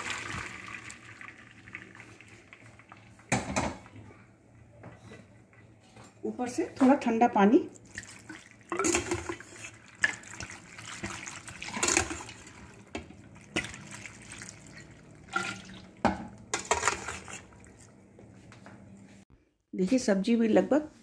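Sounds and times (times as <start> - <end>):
water splashing over pasta in colander: 0.0 - 3.4, 7.4 - 18.0.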